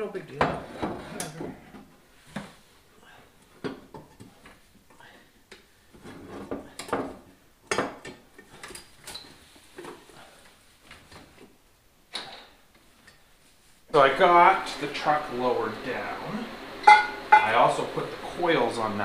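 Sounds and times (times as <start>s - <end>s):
metal tools clinking and knocking: 16.9s - 17.5s.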